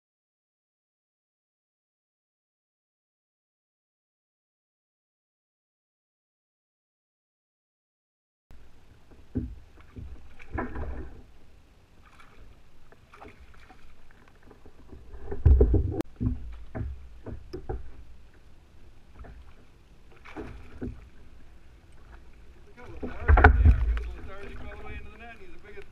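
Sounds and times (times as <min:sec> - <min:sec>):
water splashing: 0:08.6 - 0:25.9
knocks against a kayak: 0:14.9 - 0:18.0, 0:23.0 - 0:24.3.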